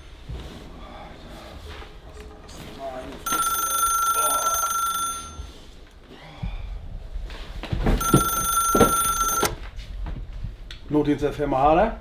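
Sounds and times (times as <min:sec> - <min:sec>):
telephone ringing: 0:03.2 - 0:05.7, 0:08.0 - 0:09.6.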